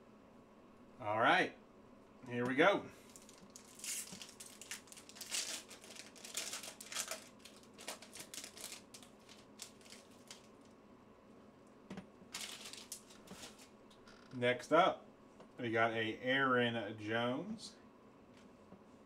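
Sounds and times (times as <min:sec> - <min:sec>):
foil wrapper tearing and crinkling: 0:03.1 - 0:10.6, 0:12.3 - 0:13.7.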